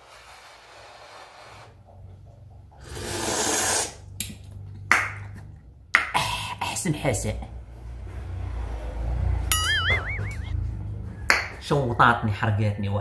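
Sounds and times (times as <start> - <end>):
man blowing on soup: 2.8 - 4.0
slurping from spoon: 2.8 - 4.0.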